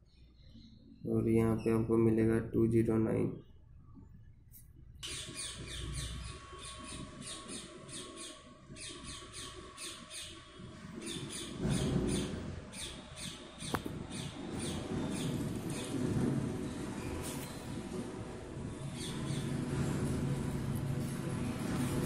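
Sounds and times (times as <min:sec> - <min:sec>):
bird chirping: 0:05.0 - 0:16.0, 0:18.8 - 0:19.6.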